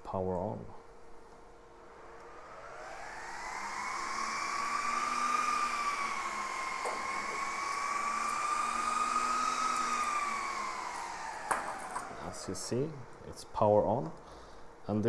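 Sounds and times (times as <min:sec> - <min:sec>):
cooling fans whining: 0:00.0 - 0:15.0
rush of air: 0:01.6 - 0:12.5.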